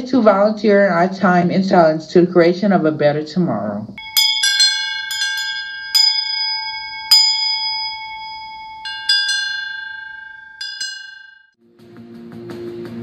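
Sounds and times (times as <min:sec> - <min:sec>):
bright metallic chimes: 0:04.0 - 0:11.6.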